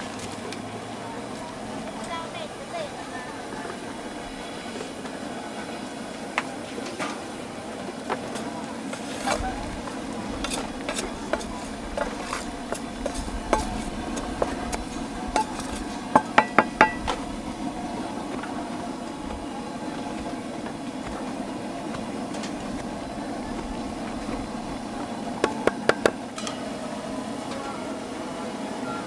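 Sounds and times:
metal paddle scraping rice: 0:08.4 - 0:17.3
low hum: 0:09.2 - 0:29.0
sharp metallic knocks: 0:15.4 - 0:17.2.

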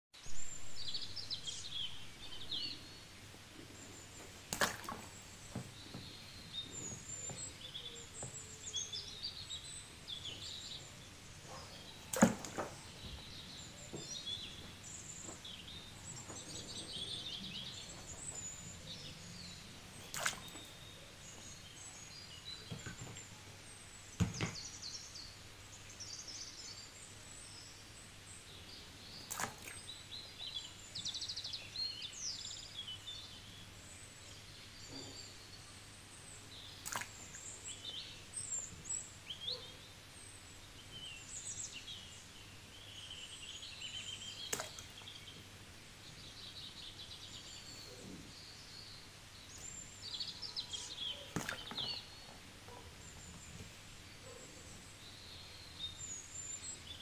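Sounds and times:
small birds chirping: 0:00.2 - 0:57.0
plastic toys dropping into water: 0:04.5 - 0:05.2, 0:12.1 - 0:12.8.

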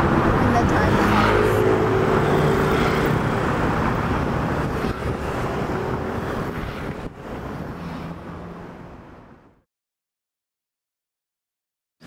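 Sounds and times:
vehicle road and wind noise: 0:00.0 - 0:09.7.

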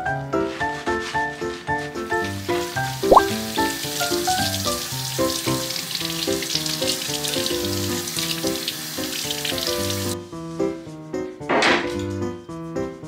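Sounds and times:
tap water running into bottle: 0:02.5 - 0:10.2.

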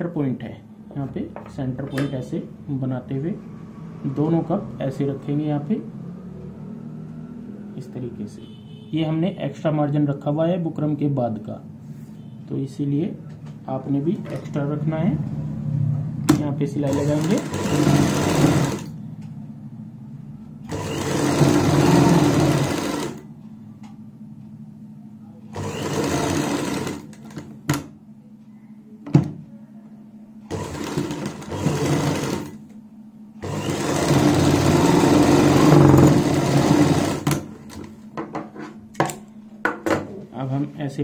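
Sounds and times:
sewing machine stitching: 0:16.8 - 0:19.0, 0:20.7 - 0:23.2, 0:25.5 - 0:27.6, 0:30.5 - 0:32.6, 0:33.4 - 0:37.8.

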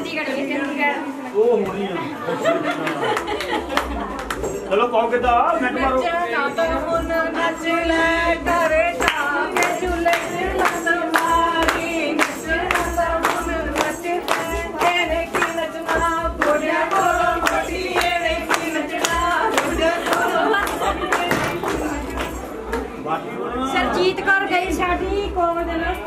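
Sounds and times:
percussion beat: 0:01.7 - 0:23.0, 0:23.8 - 0:26.0
people singing: 0:05.2 - 0:22.6.

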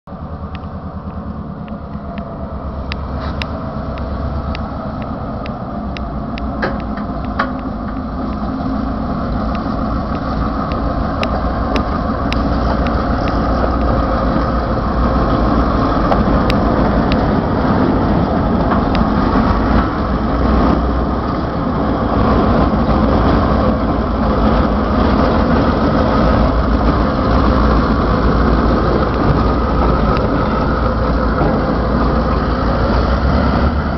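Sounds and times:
diesel locomotive engines running: 0:00.1 - 0:33.9.

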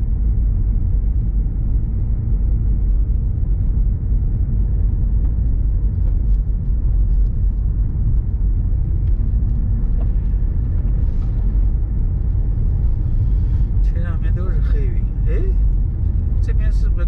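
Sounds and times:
car driving on wet road: 0:00.0 - 0:17.0
windscreen wiper sweeping: 0:09.2 - 0:13.8.

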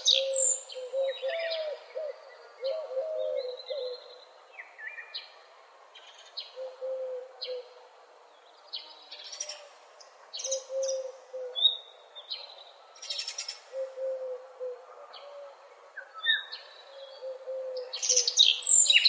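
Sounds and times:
songbirds chirping and trilling: 0:00.0 - 0:19.0
distant low hoot: 0:13.7 - 0:15.7.

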